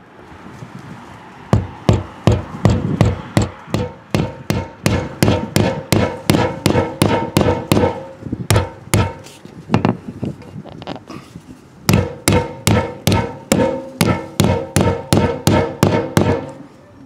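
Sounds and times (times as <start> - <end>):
hammer tapping: 1.5 - 10.0, 11.9 - 16.6.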